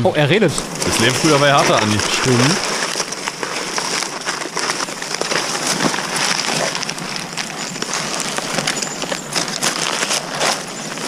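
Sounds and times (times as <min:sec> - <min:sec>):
reed stalks rustling and crackling: 0:00.4 - 0:11.0.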